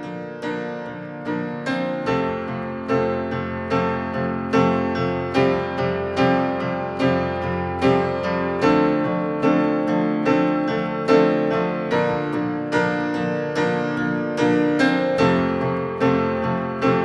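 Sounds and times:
slow piano chords: 0.0 - 17.0.

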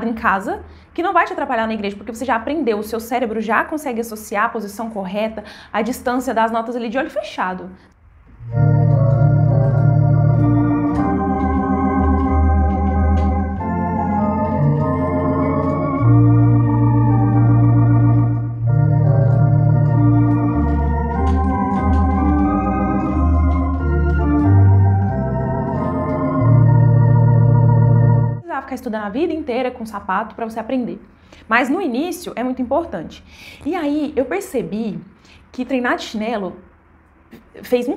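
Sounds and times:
electronic organ chords: 8.3 - 28.4
organ pedal bass notes: 8.4 - 28.4.

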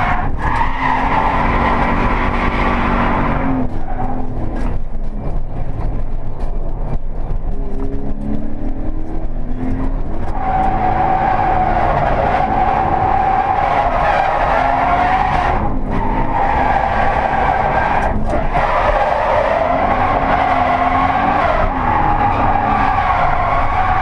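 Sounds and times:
car engine running hard: 0.0 - 24.0
tyres squealing: 10.3 - 24.0.

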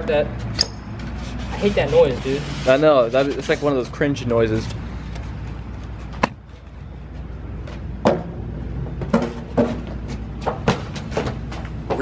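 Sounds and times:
styrofoam rustling against cardboard: 1.2 - 3.9.

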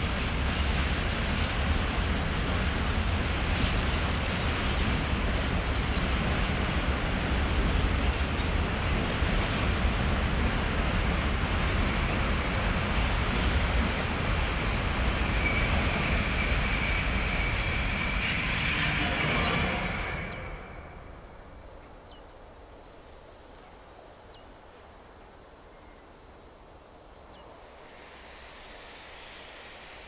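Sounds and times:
freight train rumbling: 0.0 - 22.2, 27.1 - 30.0
high squeal of train brakes: 10.6 - 21.4, 27.8 - 30.0.

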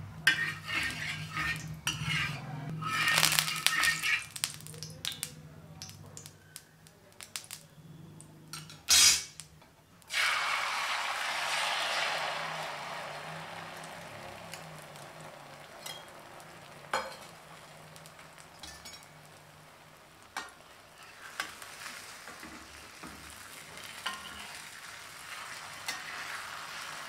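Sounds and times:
egg sizzling in oil: 0.2 - 6.6, 8.6 - 27.0
spatula scraping pan: 0.3 - 4.4, 10.1 - 19.5, 20.3 - 27.0.

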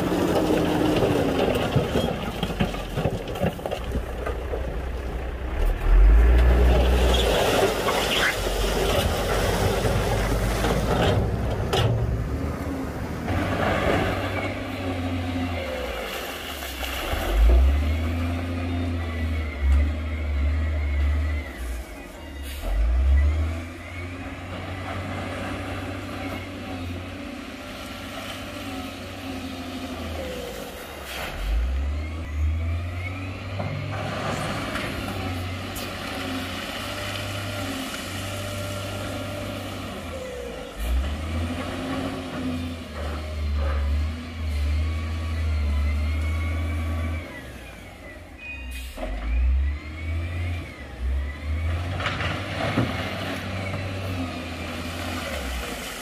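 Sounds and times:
heavy diesel engines revving: 0.0 - 3.0, 3.8 - 56.0.

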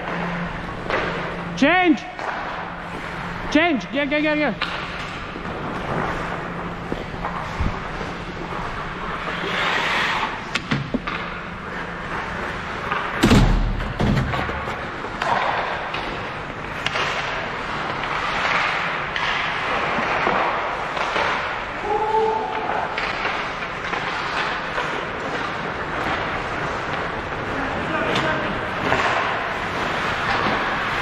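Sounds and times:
stick and puck clacks: 0.0 - 1.4, 2.1 - 2.8, 4.2 - 8.6, 9.2 - 21.7, 22.5 - 27.5, 28.1 - 31.0
skates scraping on ice: 2.2 - 21.7, 22.6 - 31.0
loud thud: 13.2 - 14.6.

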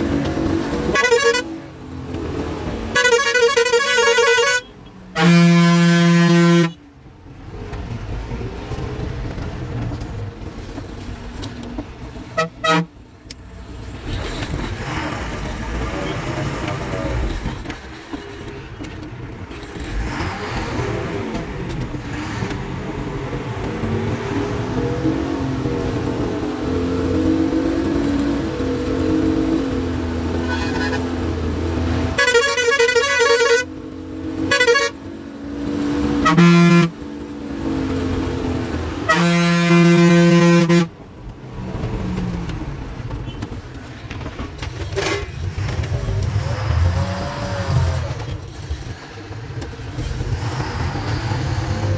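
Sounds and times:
bus engine running: 0.0 - 51.9
bus horn blasts: 0.8 - 1.7, 2.9 - 6.8, 12.3 - 13.0, 30.3 - 31.2, 31.9 - 33.7, 34.4 - 35.1, 36.1 - 37.0, 39.0 - 41.0.

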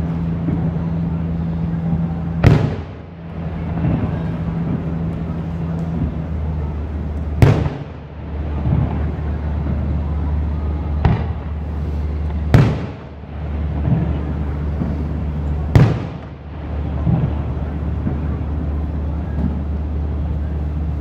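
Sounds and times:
low rumble: 0.0 - 21.0
firework shells bursting: 7.2 - 9.1, 11.0 - 16.4.

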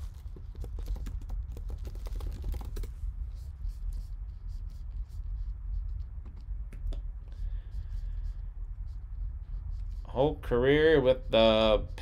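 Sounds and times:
steady low hum: 0.0 - 12.0
keyboard typing: 0.1 - 2.9.

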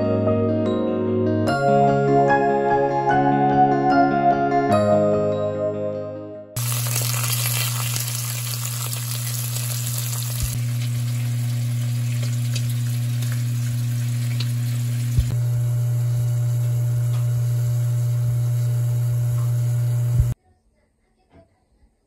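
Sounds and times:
pork sizzling in pan: 6.6 - 20.2
low hum: 9.0 - 20.4.

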